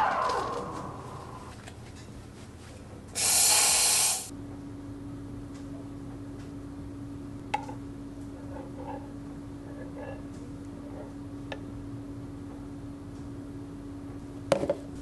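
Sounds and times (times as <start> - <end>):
steady low hum: 0.0 - 15.0
steam hiss: 3.2 - 4.3.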